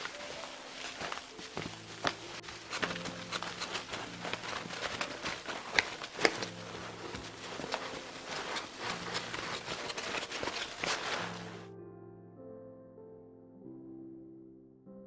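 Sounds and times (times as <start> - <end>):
paper towel rubbing glossy surface: 0.0 - 11.6.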